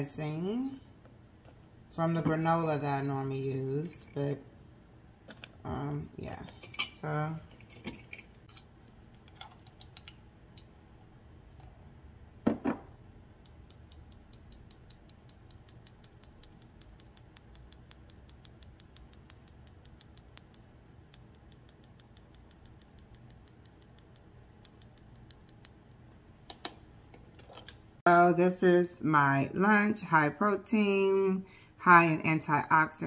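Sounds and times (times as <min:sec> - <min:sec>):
spice shaker ticking: 0:13.4 - 0:25.8.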